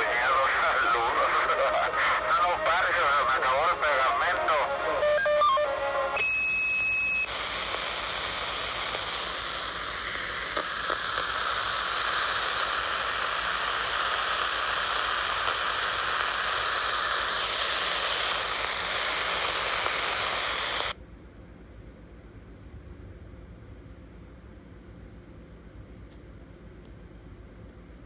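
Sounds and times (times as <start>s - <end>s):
radio static hiss: 0.0s - 21.0s
high radio beep: 6.2s - 11.1s.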